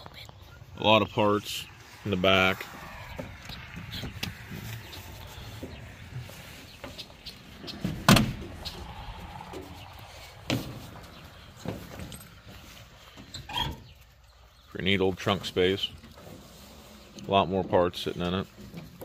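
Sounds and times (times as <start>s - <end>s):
loud thumps: 7.8s - 8.8s.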